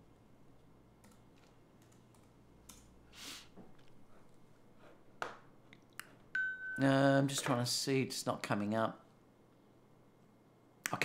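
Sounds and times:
computer keyboard typing clicks: 0:01.0 - 0:02.9.

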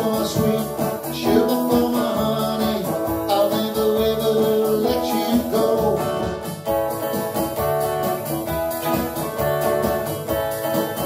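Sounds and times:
person singing: 0:00.0 - 0:06.5
electric guitar: 0:00.0 - 0:11.0
steady rhythm: 0:00.0 - 0:11.0.

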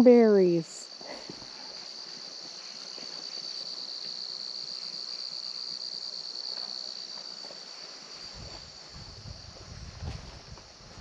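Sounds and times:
high-pitched insect chorus: 0:00.0 - 0:11.0.

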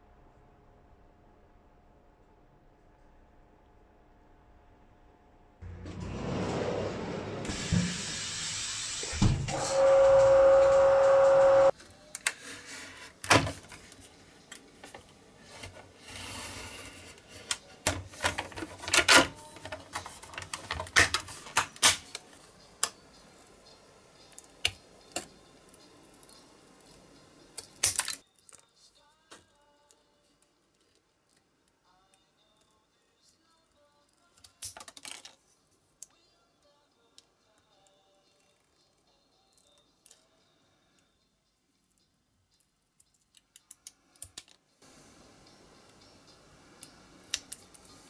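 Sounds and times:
sharp clicks and snaps: 0:41.8 - 0:44.6, 0:46.8 - 0:48.0.

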